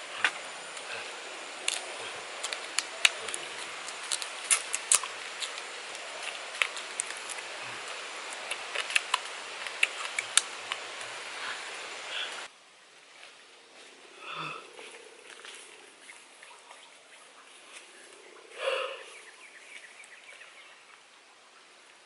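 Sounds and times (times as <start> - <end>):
forest ambience hiss: 0.0 - 22.0
food cracking while eaten: 1.7 - 7.5, 8.4 - 10.8.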